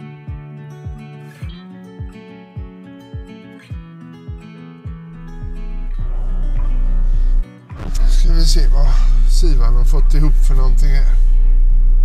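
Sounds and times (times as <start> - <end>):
strummed guitar chords: 0.0 - 12.0
kick drum beat: 0.3 - 8.2.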